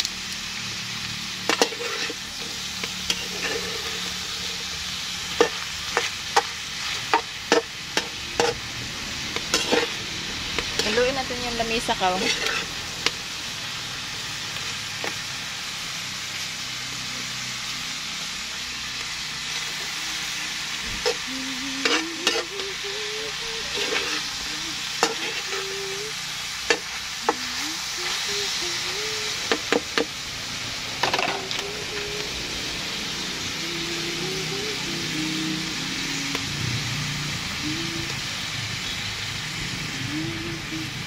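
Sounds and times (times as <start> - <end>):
food sizzling in a wok: 0.0 - 41.0
metal spatula scraping a pan: 1.4 - 4.6, 5.4 - 8.7, 9.4 - 12.9, 21.0 - 22.6, 23.6 - 24.4, 25.0 - 25.8.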